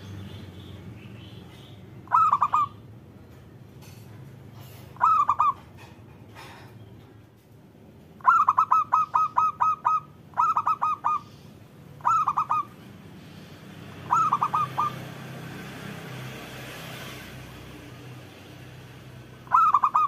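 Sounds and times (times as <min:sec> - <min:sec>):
dove cooing: 0:02.1 - 0:02.8, 0:04.8 - 0:05.9, 0:08.2 - 0:11.4, 0:12.0 - 0:12.8, 0:14.0 - 0:15.1, 0:19.4 - 0:20.0.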